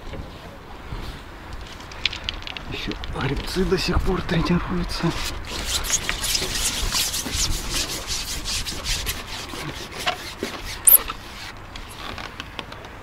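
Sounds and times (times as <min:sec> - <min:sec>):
rubbing and scraping: 0:05.0 - 0:12.2.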